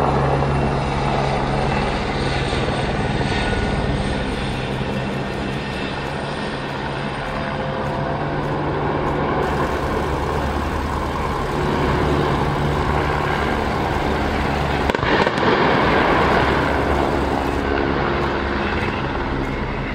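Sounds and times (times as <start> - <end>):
helicopter rotor drone: 0.0 - 19.9
outdoor rumble: 9.4 - 18.2.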